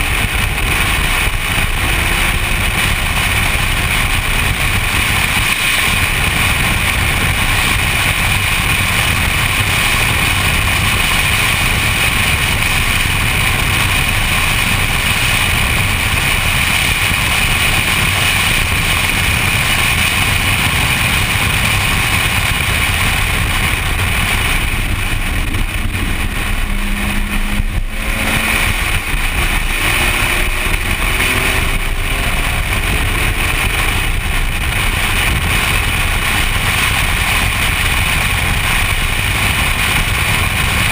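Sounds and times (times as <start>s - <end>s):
car engine at speed: 0.0s - 40.9s
wind and road noise: 0.0s - 40.9s.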